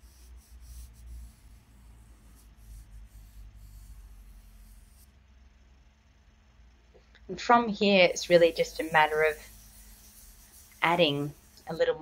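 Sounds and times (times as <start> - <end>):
fingertip rubbing pastel on paper: 0.0 - 5.1, 8.0 - 12.0.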